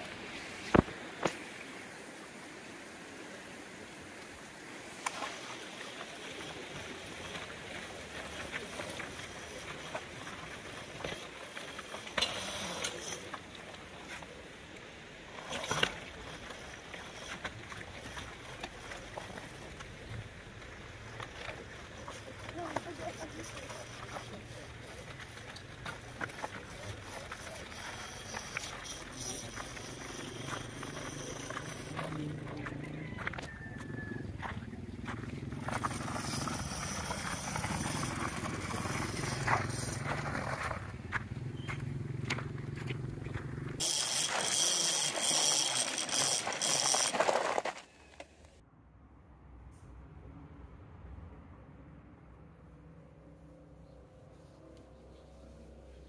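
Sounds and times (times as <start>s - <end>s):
tyres crunching over gravel: 20.6s - 48.2s
electric motor humming: 22.3s - 33.0s, 43.8s - 48.6s.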